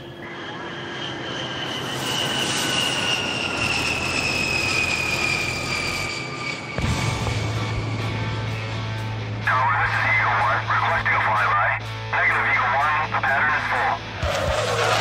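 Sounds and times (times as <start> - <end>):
high jet whine sliding down: 0.0 - 8.6
jet aircraft roar: 0.0 - 15.0.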